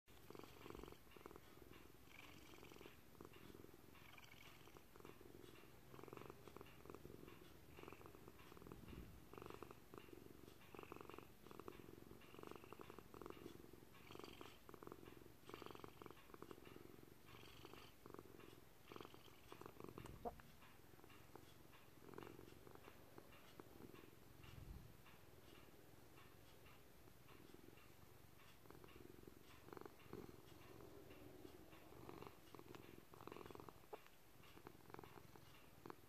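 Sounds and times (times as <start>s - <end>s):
cat purring: 0.1s - 36.0s.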